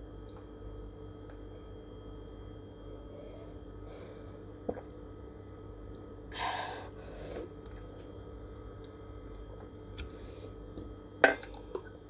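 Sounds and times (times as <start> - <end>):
steady low hum: 0.0 - 12.0
person exhaling breathily: 6.3 - 7.4.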